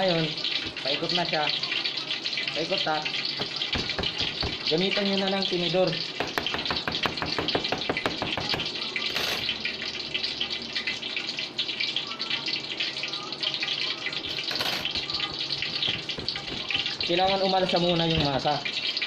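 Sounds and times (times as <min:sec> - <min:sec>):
fork tapping dough on steel table: 0:06.2 - 0:08.7.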